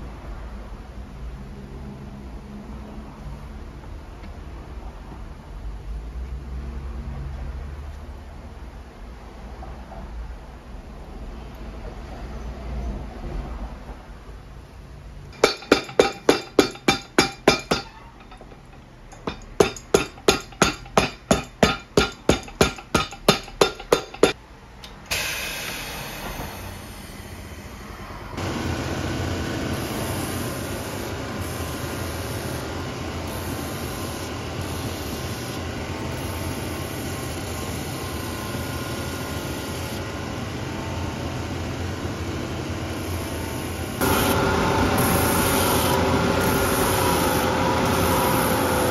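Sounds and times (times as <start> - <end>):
hammer tapping rubber sole: 15.4 - 18.0, 19.2 - 24.4
machine motor running: 28.4 - 40.6, 42.2 - 48.9
sanding belt grinding: 44.0 - 48.9.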